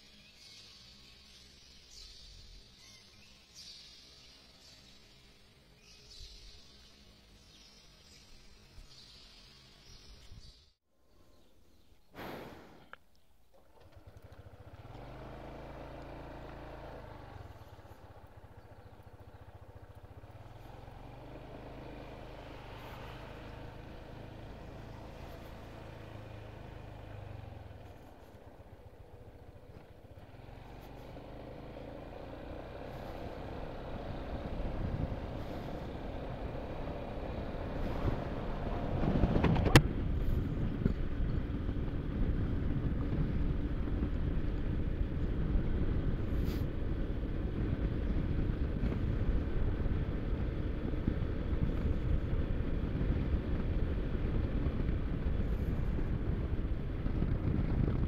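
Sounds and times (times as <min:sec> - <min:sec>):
scooter engine: 0:13.5 - 0:58.0
wind noise: 0:34.1 - 0:58.0.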